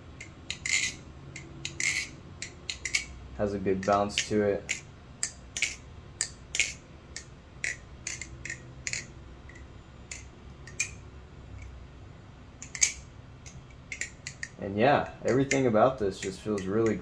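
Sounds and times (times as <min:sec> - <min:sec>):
butterfly knife clicking: 0:00.2 - 0:03.2, 0:04.2 - 0:11.0, 0:12.6 - 0:14.6.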